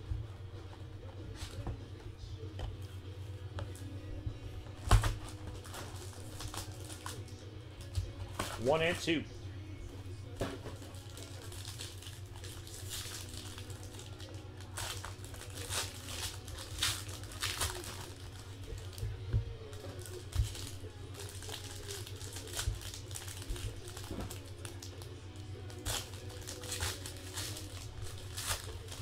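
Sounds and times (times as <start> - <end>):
foil wrappers crinkling: 4.8 - 9.0, 10.6 - 29.0.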